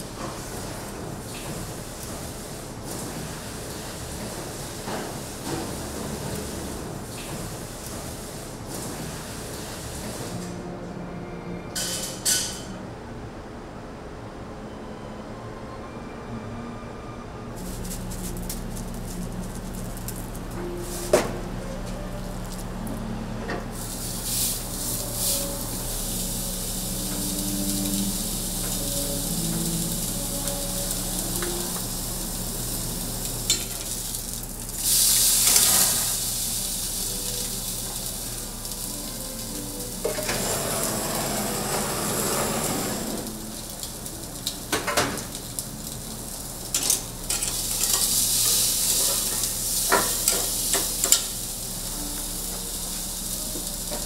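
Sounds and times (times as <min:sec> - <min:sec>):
steak sizzling: 0:17.6 - 0:23.0, 0:23.7 - 0:54.0.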